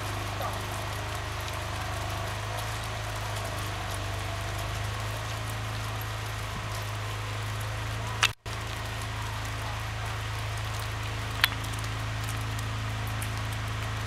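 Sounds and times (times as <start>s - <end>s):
constant hiss: 0.0s - 14.0s
low mechanical hum: 0.0s - 14.0s
sharp clicks: 10.8s - 11.9s.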